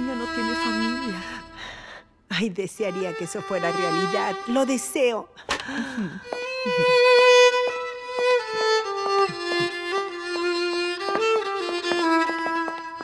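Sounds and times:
violin playing slow held notes: 0:00.0 - 0:01.8, 0:02.8 - 0:05.0, 0:06.2 - 0:13.0.

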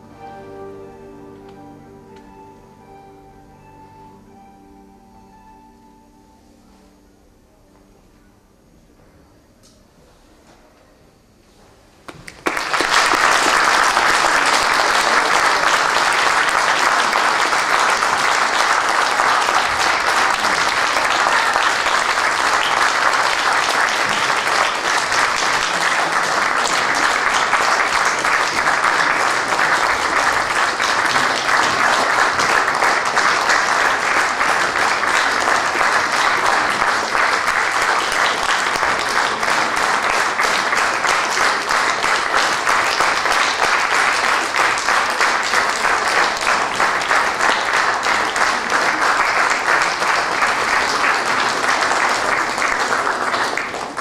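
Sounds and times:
audience applauding: 0:12.1 - 0:54.0.

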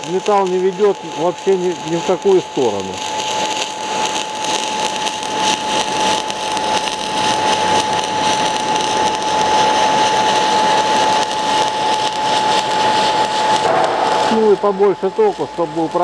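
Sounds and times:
thin steady whine: 0:00.0 - 0:16.0
welding arc crackling hiss: 0:00.0 - 0:16.0.

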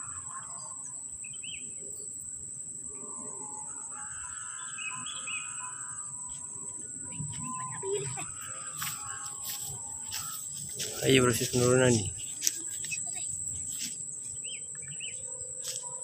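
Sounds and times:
high-pitched insect drone: 0:00.0 - 0:16.0
bird chirps: 0:04.2 - 0:16.0.

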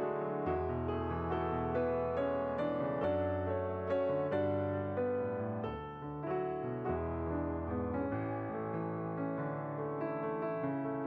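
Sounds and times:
slow piano music: 0:00.0 - 0:11.0.

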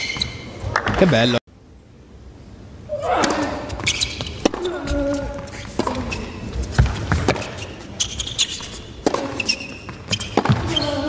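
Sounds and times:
shoe squeaks on court: 0:00.0 - 0:00.6, 0:03.7 - 0:11.0
racket striking tennis ball: 0:03.2 - 0:07.8, 0:08.4 - 0:10.8.

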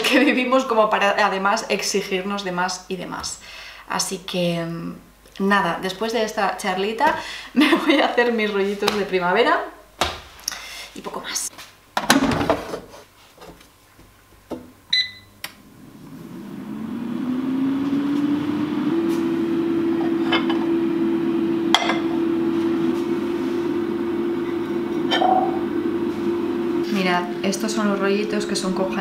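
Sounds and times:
short beep: 0:14.9 - 0:15.4
fan motor whining and humming: 0:15.4 - 0:29.0
cup clinking: 0:21.7 - 0:22.2, 0:25.0 - 0:25.7.

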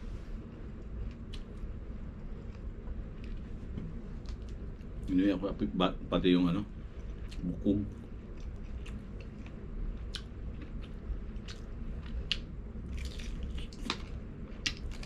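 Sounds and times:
man chewing crispy chicken: 0:07.0 - 0:15.0.

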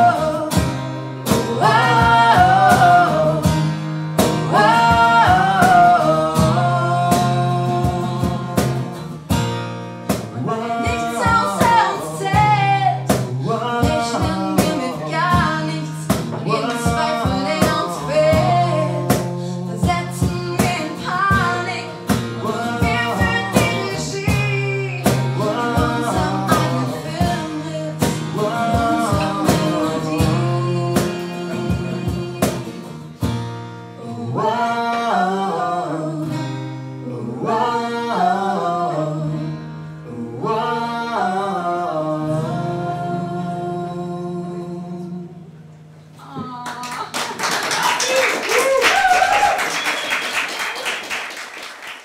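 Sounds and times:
people singing: 0:00.0 - 0:09.2, 0:10.1 - 0:33.1, 0:34.0 - 0:45.5
acoustic guitar strumming: 0:00.0 - 0:45.9
audience clapping: 0:46.5 - 0:52.0
audience shouts: 0:47.7 - 0:50.9.

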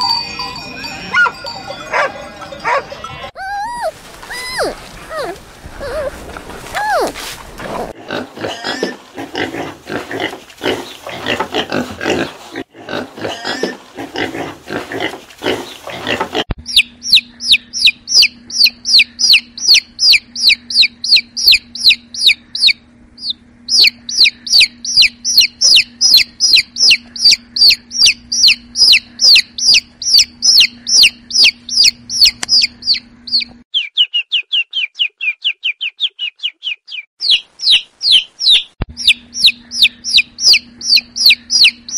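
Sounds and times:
pigs calling: 0:02.0 - 0:22.8
steady low hum: 0:03.8 - 0:33.6, 0:38.8 - 0:41.9
chicks peeping: 0:16.7 - 0:41.9.

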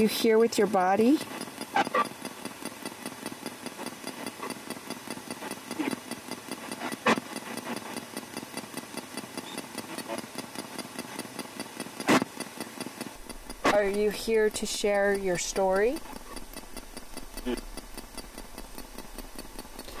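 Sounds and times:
radio static sweeping: 0:13.2 - 0:18.8.

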